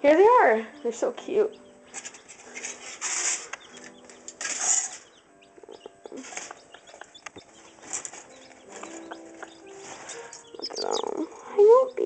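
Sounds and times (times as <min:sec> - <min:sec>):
chicks peeping: 0:00.1 - 0:12.0
rustling: 0:01.9 - 0:05.1, 0:06.1 - 0:11.3.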